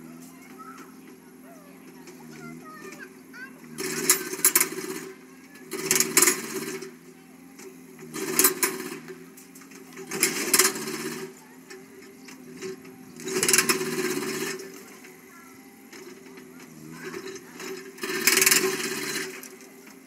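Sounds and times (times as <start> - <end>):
motor running: 0.0 - 20.0
rapid clattering bursts: 0.3 - 20.0.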